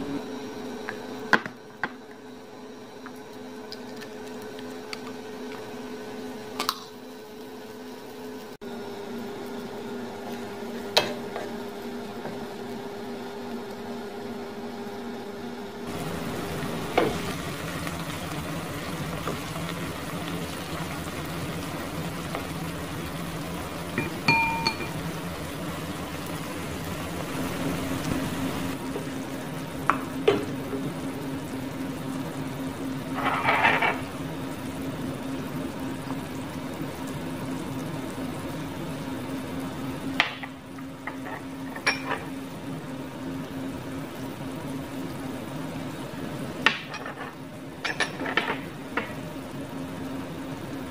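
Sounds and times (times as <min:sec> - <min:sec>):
food sizzling in a pan: 0:04.4 - 0:13.9, 0:15.9 - 0:50.9
ringing clink: 0:24.0 - 0:24.9
wooden spatula scraping a pan: 0:33.2 - 0:34.1.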